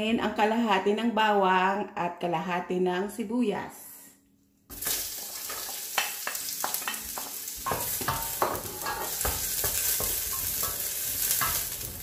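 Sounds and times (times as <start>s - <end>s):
onion and garlic sizzling in oil: 4.7s - 12.0s
spatula scraping a pot: 6.9s - 12.0s.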